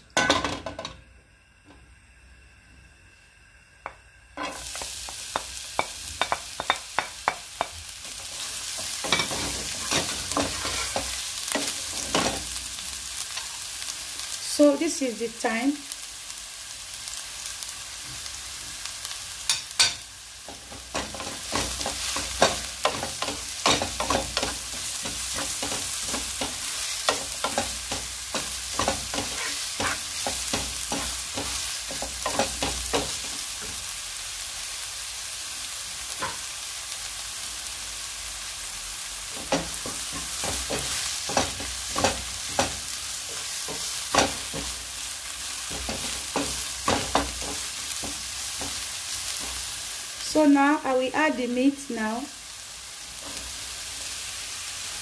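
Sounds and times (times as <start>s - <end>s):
oil sizzling in a pot: 0.0s - 55.0s
spoon scraping against pot: 28.4s - 30.3s.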